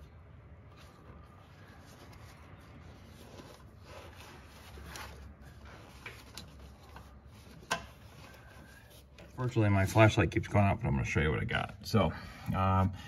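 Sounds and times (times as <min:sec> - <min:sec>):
hands rustling and scraping foam: 0:00.7 - 0:09.3.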